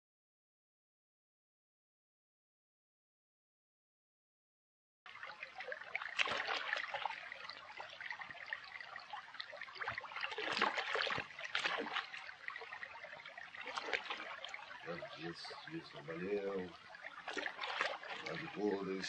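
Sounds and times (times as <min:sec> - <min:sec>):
small water splashes: 0:05.1 - 0:19.0
water trickling and dripping: 0:05.1 - 0:19.0.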